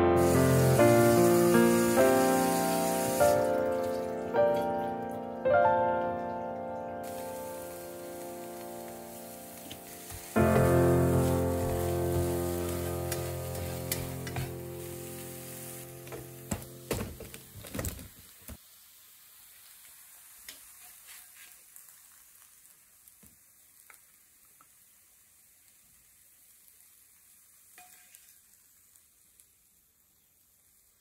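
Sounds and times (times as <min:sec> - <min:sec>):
food sizzling in a frying pan: 0:00.0 - 0:05.0, 0:07.0 - 0:31.0
spatula scraping and tapping pan: 0:09.7 - 0:14.6, 0:20.5 - 0:21.7, 0:27.8 - 0:28.4.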